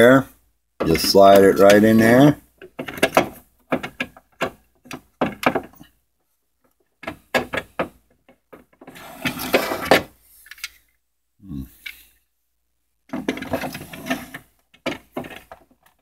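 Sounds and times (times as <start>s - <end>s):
plastic clicks and knocks: 2.6s - 5.8s, 6.7s - 8.9s, 14.7s - 16.0s
plastic scraping rattle: 13.1s - 16.0s.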